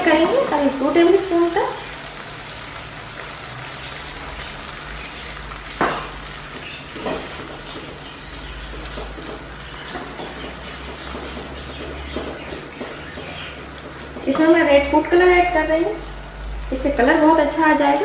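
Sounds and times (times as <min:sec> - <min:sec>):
sauce sizzling in a pan: 0:00.0 - 0:18.0
spatula stirring: 0:06.5 - 0:15.2
spatula knocking on pan: 0:06.9 - 0:14.6.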